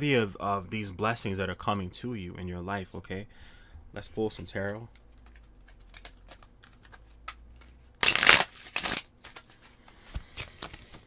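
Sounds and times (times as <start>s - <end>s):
cards being shuffled: 4.3s - 11.0s.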